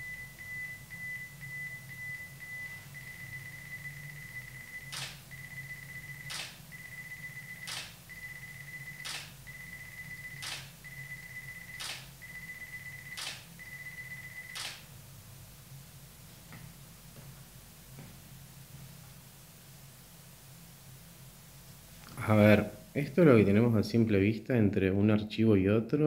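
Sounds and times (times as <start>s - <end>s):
camera shutter clicks: 4.9s - 5.2s, 6.3s - 6.6s, 7.6s - 8.0s, 9.0s - 9.3s, 10.4s - 10.7s, 11.7s - 12.1s, 13.1s - 13.5s, 14.5s - 14.8s.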